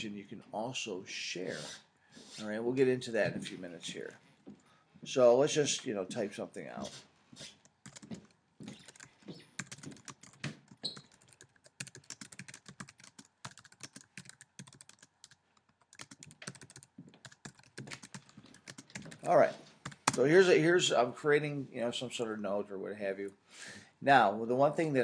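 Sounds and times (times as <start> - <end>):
typing on computer keyboard: 7.8 - 20.2.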